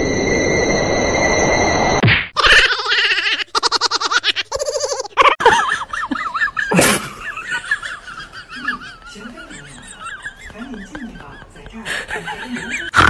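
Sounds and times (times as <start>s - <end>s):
warbling tone: 0.0s - 2.0s
person laughing hard: 2.4s - 13.0s.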